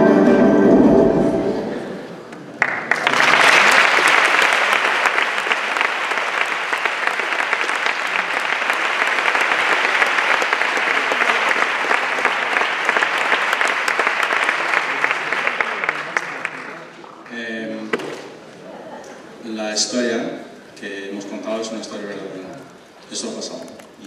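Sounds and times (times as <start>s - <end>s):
audience applauding: 2.3s - 17.3s.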